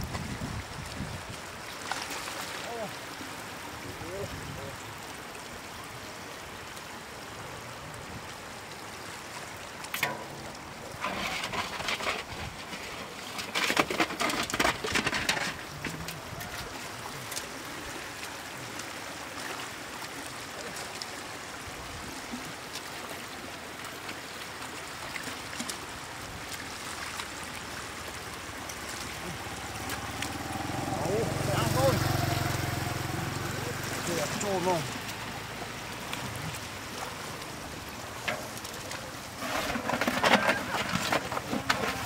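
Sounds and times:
floodwater running over ground: 0.0s - 42.0s
fish thrashing and splashing: 10.0s - 18.1s, 22.8s - 42.0s.

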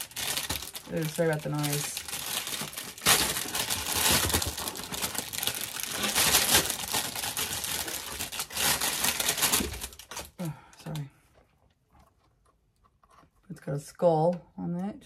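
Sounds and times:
packaging crinkling: 0.0s - 10.5s.

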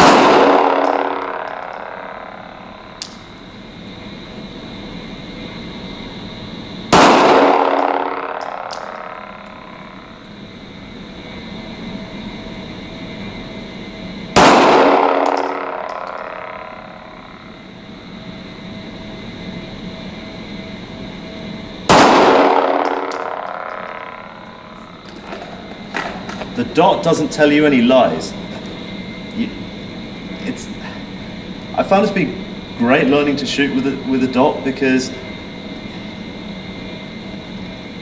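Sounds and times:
pistol shots echoing indoors: 0.0s - 3.3s, 6.9s - 10.1s, 14.3s - 17.4s, 21.9s - 24.8s.

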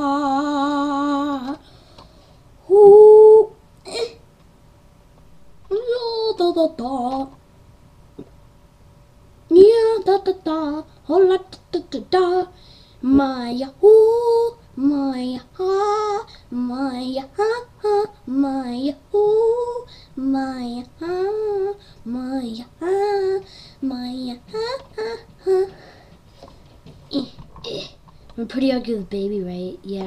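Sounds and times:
high voice singing unaccompanied: 0.0s - 1.6s, 2.6s - 3.6s, 5.7s - 7.4s, 9.5s - 26.0s.

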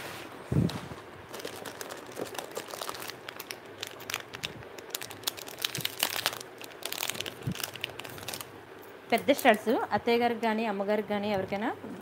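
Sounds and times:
plastic packets crinkling: 1.3s - 8.6s.

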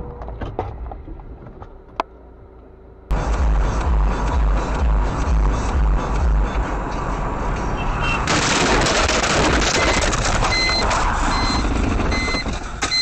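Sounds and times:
car crashing: 8.3s - 13.0s
high electronic beep: 9.7s - 13.0s.

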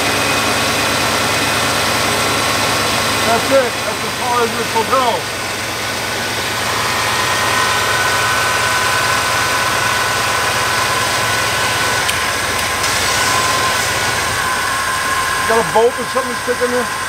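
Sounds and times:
car engine idling: 0.0s - 17.0s
high whistle: 6.6s - 12.0s, 13.0s - 17.0s.

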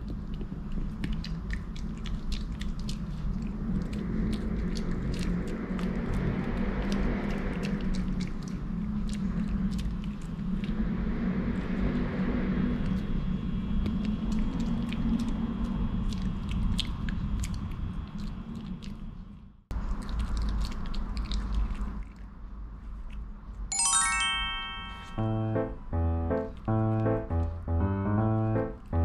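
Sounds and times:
dog chewing and gnawing: 0.0s - 10.8s, 13.8s - 23.2s
teeth clicking: 0.0s - 10.8s, 13.8s - 22.4s
low steady hum: 21.8s - 29.0s
bright chime: 23.7s - 26.0s
background music: 23.7s - 29.0s.

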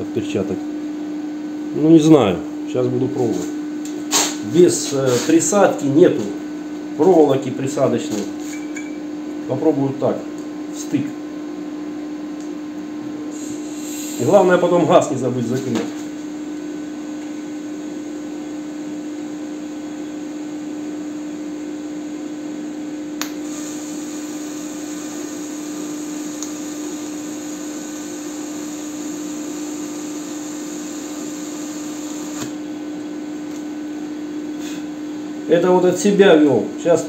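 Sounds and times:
welder humming and hissing: 4.1s - 6.3s, 13.2s - 16.2s, 23.2s - 32.8s.

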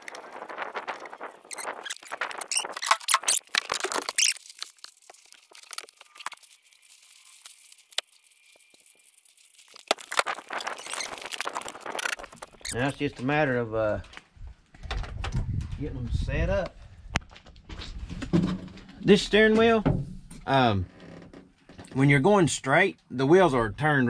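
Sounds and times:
rubber hose squeaking and scraping: 0.0s - 13.0s.

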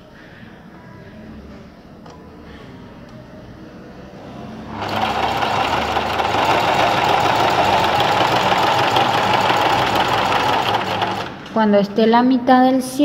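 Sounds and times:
sewing machine running: 4.7s - 11.5s.

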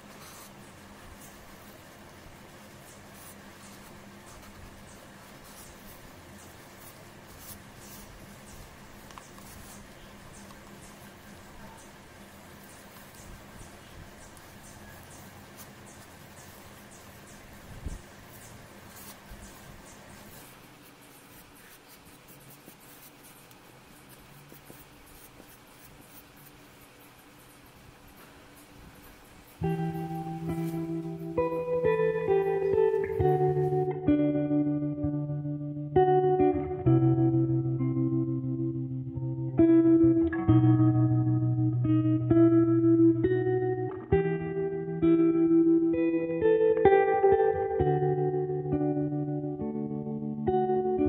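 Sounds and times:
faint steady hum: 0.0s - 51.0s.

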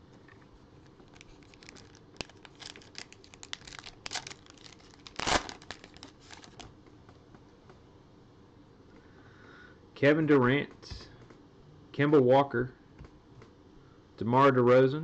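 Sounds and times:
card pack wrapper crinkling: 0.8s - 6.7s.

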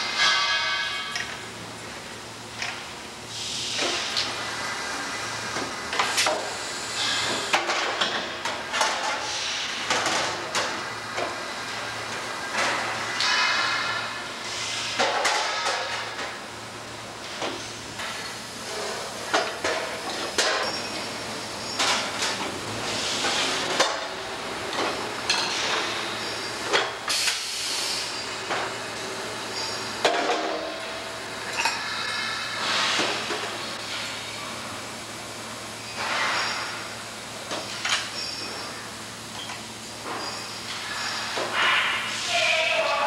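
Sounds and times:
bending machine humming and hissing: 0.0s - 43.0s
sharp metal clanks: 0.2s - 1.3s.

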